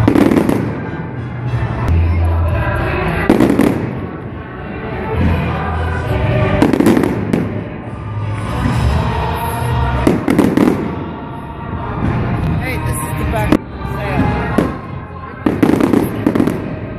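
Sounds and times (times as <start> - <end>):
fireworks bursting: 0.0 - 1.1, 3.1 - 4.4, 6.4 - 16.9
music: 0.0 - 16.9.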